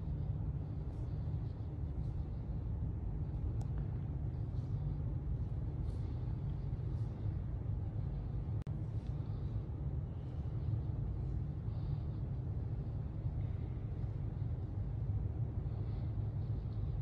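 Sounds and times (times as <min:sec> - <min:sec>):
low room rumble: 0:00.0 - 0:17.0.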